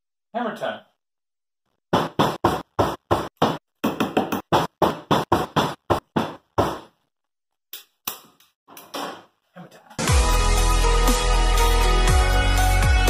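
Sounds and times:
hammer knocking on wood: 0:01.9 - 0:06.9.

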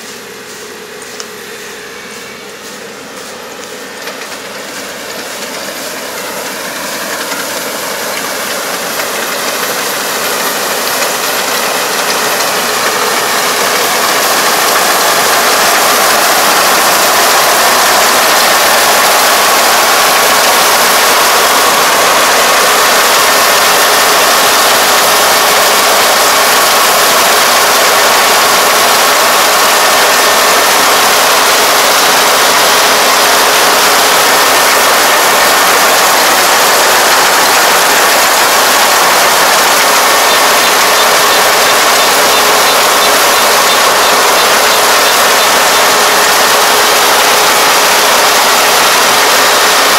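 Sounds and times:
combine harvester engine and threshing: 0:00.0 - 0:49.9.

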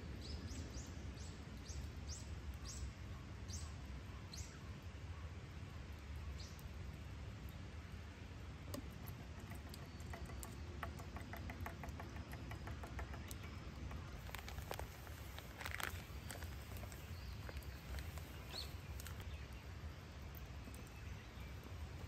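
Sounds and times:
powder pouring from plastic bag: 0:14.2 - 0:19.2.

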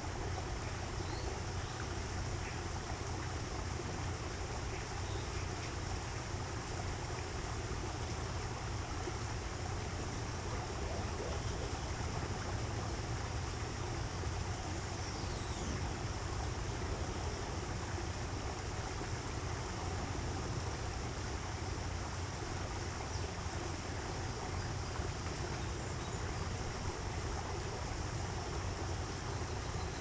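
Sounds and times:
water rushing in a stream: 0:00.0 - 0:30.0
faint bird chirps: 0:01.0 - 0:02.6, 0:14.8 - 0:16.0, 0:29.3 - 0:30.0.

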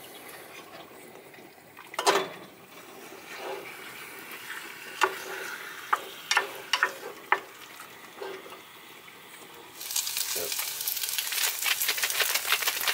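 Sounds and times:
chicken sizzling in a saucepan: 0:02.7 - 0:12.9.

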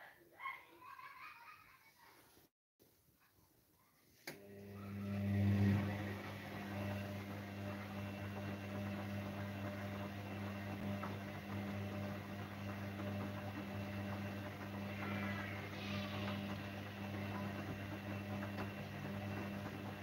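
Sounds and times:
washing machine drum spinning: 0:04.4 - 0:20.0.

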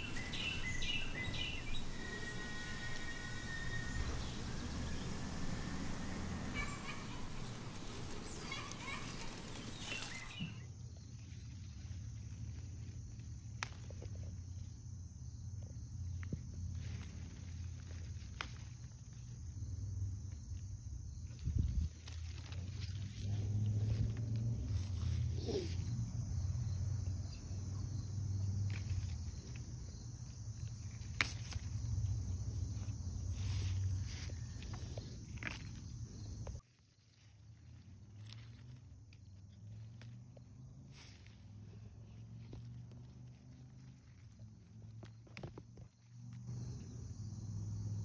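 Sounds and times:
low rumble: 0:00.0 - 0:08.4
hands rustling plants: 0:00.0 - 0:26.6, 0:28.4 - 0:46.8
crickets chirping: 0:00.0 - 0:48.0
high insect trill: 0:00.0 - 0:48.0
plant stem snapping: 0:13.6 - 0:14.0, 0:31.0 - 0:31.7.

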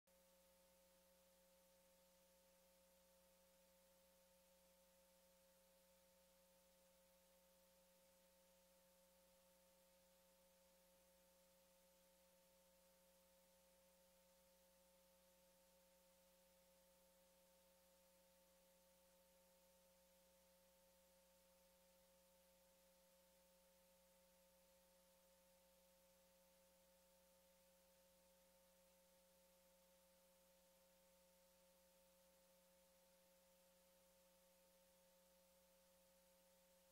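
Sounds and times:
faint electronic hum: 0:00.1 - 0:36.9.

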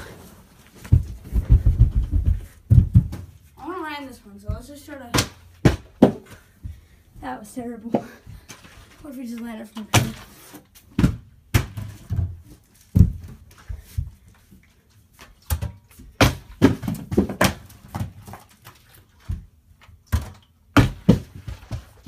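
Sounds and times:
plastic bottle landing thuds: 0:15.5 - 0:18.3.

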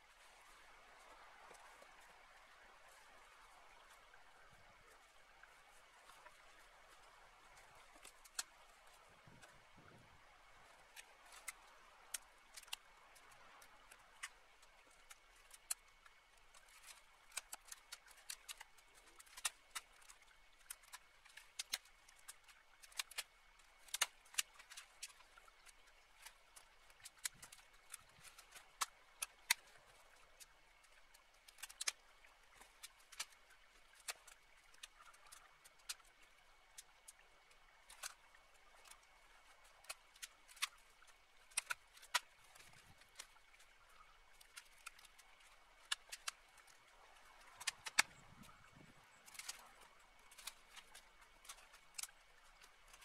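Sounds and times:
twigs snapping: 0:16.8 - 0:20.1, 0:23.9 - 0:25.2, 0:31.5 - 0:32.0, 0:41.5 - 0:43.3, 0:45.8 - 0:46.4, 0:47.4 - 0:48.2, 0:49.2 - 0:49.7, 0:50.3 - 0:52.1.

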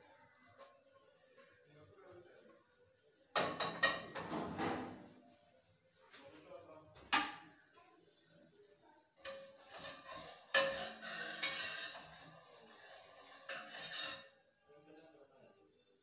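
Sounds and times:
utensil scraping metal frying pan: 0:09.3 - 0:14.4.

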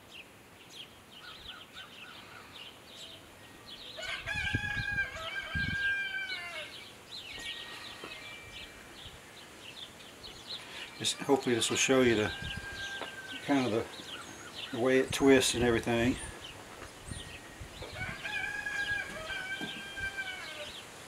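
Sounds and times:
rooster crowing: 0:04.0 - 0:06.8, 0:10.8 - 0:14.3, 0:17.8 - 0:20.8
light bird chirps: 0:06.6 - 0:18.0.

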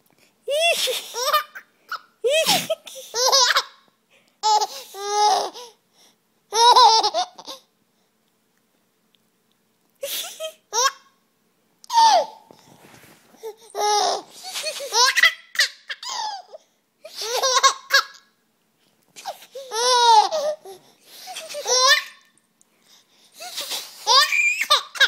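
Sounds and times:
toddler laughing: 0:00.5 - 0:03.8, 0:06.5 - 0:07.6, 0:11.9 - 0:12.4, 0:13.7 - 0:18.3, 0:19.2 - 0:22.3, 0:23.4 - 0:25.0.

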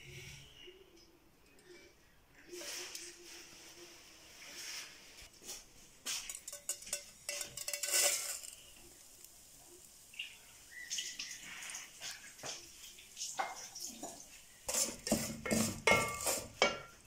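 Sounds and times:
dry noodles rattling in metal pot: 0:06.3 - 0:09.2.

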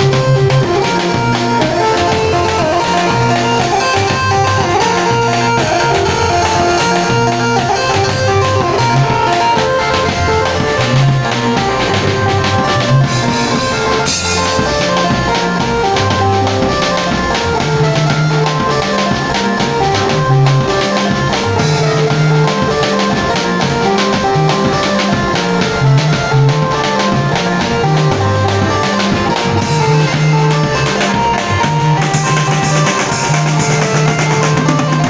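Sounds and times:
live band playing upbeat instrumental: 0:00.0 - 0:35.0.

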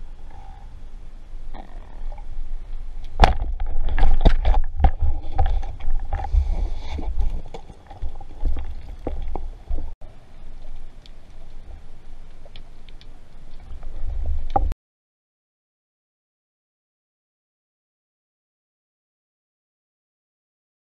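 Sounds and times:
low underwater rumble: 0:00.0 - 0:14.8.

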